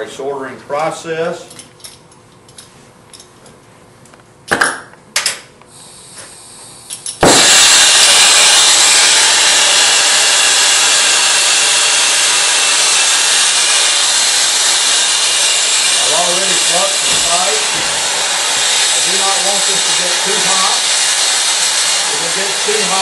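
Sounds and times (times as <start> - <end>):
torch flame hissing: 5.7 - 23.0.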